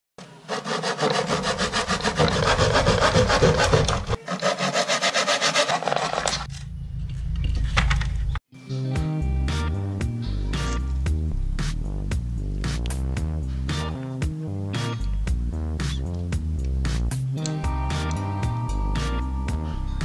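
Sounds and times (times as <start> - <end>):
saw cutting through plywood: 0.2 - 6.5.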